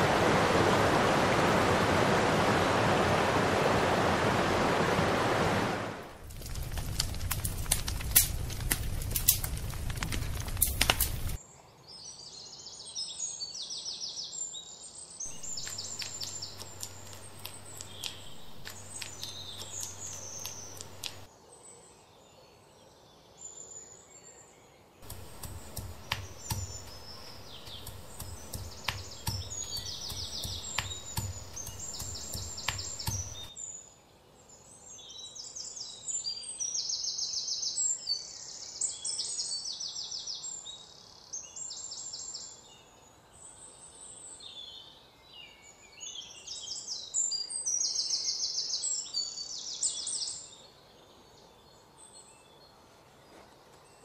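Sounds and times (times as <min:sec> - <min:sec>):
wood fire crackling: 0:06.0 - 0:11.4, 0:15.3 - 0:21.3, 0:25.0 - 0:33.5
songbirds chirping and trilling: 0:10.1 - 0:54.0
pestle pounding in stone mortar: 0:25.0 - 0:33.5.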